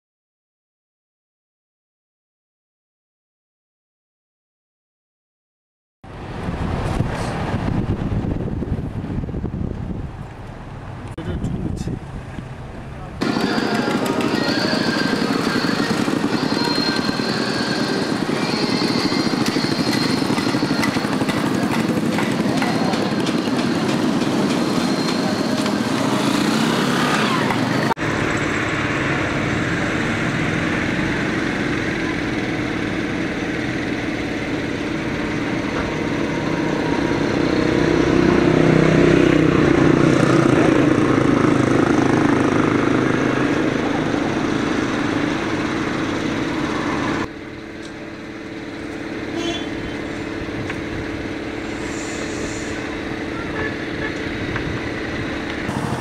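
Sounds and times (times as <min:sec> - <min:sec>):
motorcycle and vehicle engines: 0:06.0 - 0:56.0.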